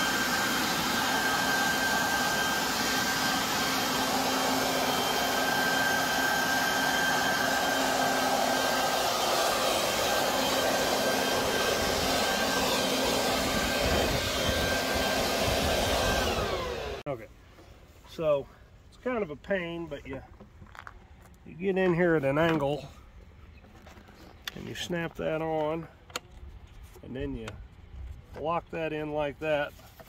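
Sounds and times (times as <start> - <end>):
electric leaf blower running: 0.0 - 17.0.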